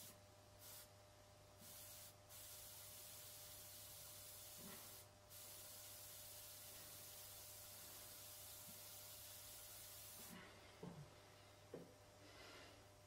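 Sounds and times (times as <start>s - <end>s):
airbrush hissing: 0.0s - 0.9s, 1.6s - 10.5s.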